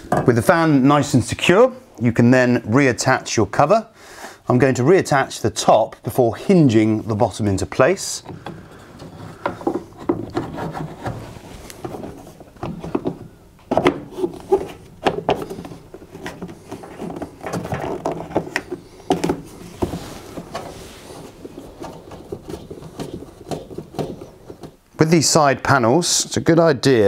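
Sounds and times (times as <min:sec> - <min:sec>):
plastic cover knocking and clicking: 0:08.3 - 0:11.2, 0:11.8 - 0:20.6, 0:21.8 - 0:24.8.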